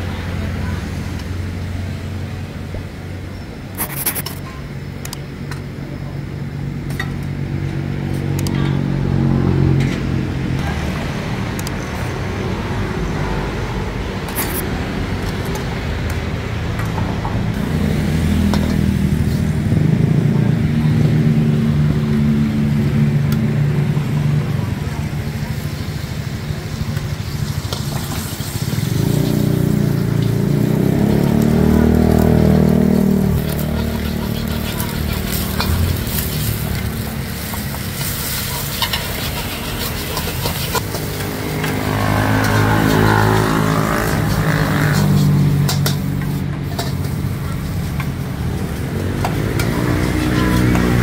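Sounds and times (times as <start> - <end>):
food sizzling in a wok: 17.6 - 20.2, 23.7 - 51.0
metal ladle scraping a pan: 33.4 - 47.2.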